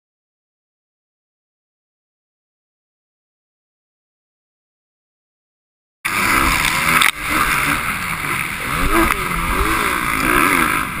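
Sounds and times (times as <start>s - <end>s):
dirt bike engine revving: 6.1s - 11.0s.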